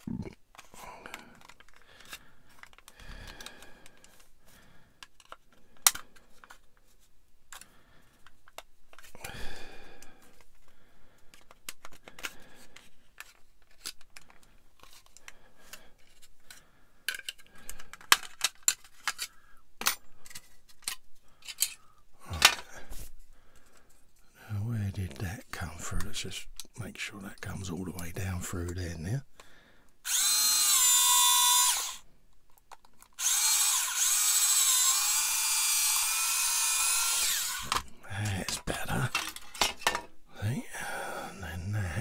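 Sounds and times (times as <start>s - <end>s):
plastic parts clicking and tapping: 0.4s - 4.3s, 5.0s - 6.8s, 7.5s - 9.2s, 10.2s - 24.0s, 32.3s - 33.6s, 37.1s - 40.2s.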